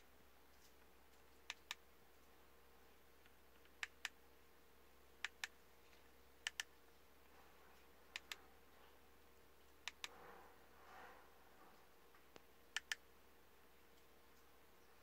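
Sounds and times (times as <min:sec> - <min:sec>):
faint steady hum: 0:00.0 - 0:15.0
mouse double clicks: 0:12.8 - 0:13.0.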